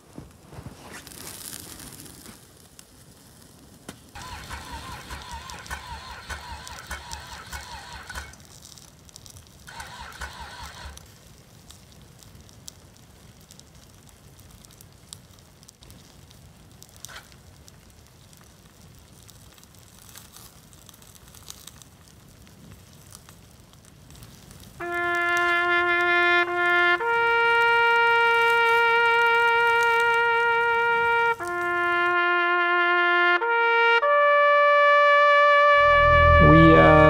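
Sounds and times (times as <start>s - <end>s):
fire hissing: 0.0s - 32.1s
fire popping: 0.0s - 33.7s
loud brass-like music: 35.6s - 37.0s.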